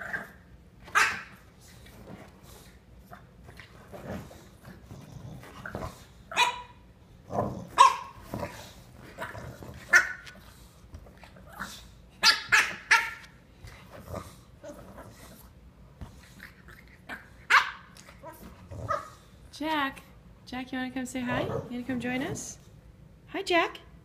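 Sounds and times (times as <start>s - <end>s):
puppy yapping: 0.9s - 1.4s, 6.3s - 6.8s, 7.8s - 8.2s, 12.2s - 13.3s, 17.5s - 19.1s
dog grumbling: 18.2s - 19.1s.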